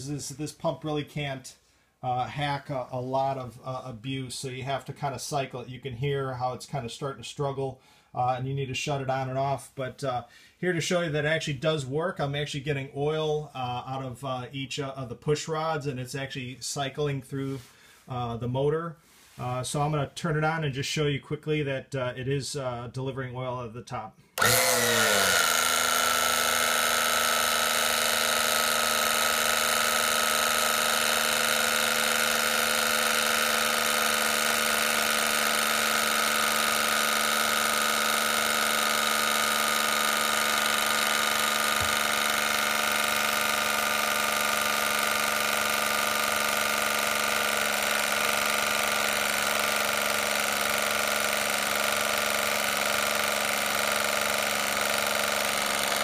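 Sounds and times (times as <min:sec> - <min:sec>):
electric oil pump whine: 0:24.4 - 0:56.0.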